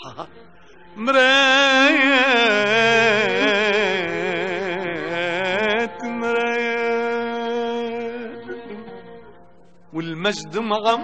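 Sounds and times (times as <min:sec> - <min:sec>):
person singing with vibrato: 0:00.0 - 0:11.0.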